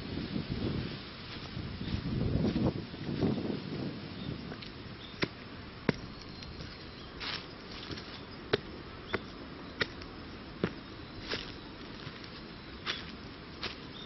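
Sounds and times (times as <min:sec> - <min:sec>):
rustle of dry leaves: 0:00.0 - 0:14.0
footsteps on concrete steps: 0:05.2 - 0:13.8.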